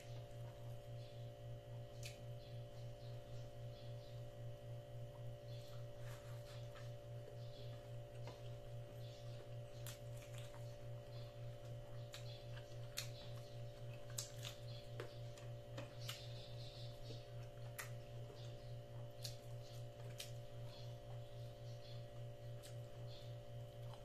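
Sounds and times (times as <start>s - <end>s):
low electrical hum: 0.0s - 24.0s
chewing clicks and smacks: 1.8s - 2.6s, 6.7s - 24.0s
fingers picking at food in tray: 5.2s - 24.0s.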